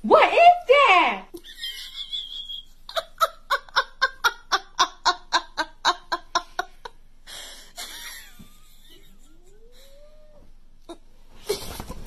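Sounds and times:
person laughing: 1.4s - 6.9s, 7.8s - 10.1s.

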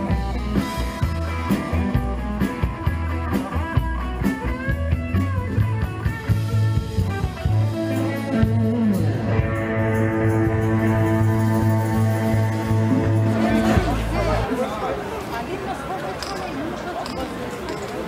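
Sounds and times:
bass line: 0.0s - 14.4s
electric guitar lead lines: 0.0s - 14.5s
drums: 0.0s - 14.6s.

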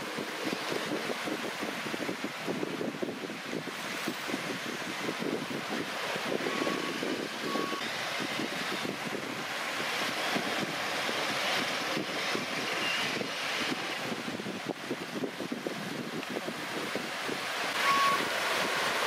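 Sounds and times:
short beeps: 17.8s - 18.2s.

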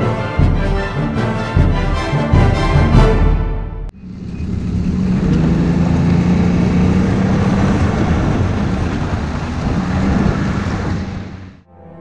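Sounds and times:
track and wind noise: 3.9s - 11.6s
snowmobile engine running: 4.3s - 11.6s.

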